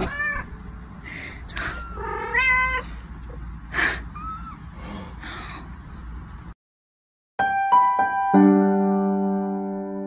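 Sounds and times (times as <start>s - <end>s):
cat mewing: 0.0s - 0.5s, 1.5s - 2.9s, 4.0s - 4.7s.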